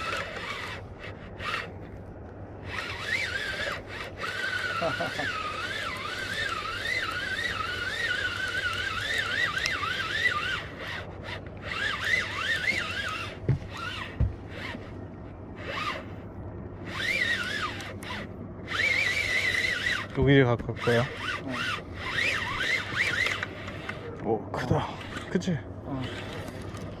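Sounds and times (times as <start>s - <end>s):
fishing reel gears whining: 0.0s - 1.9s, 2.5s - 16.2s, 16.8s - 24.1s, 24.9s - 27.0s
dull knocks: 13.4s - 14.5s.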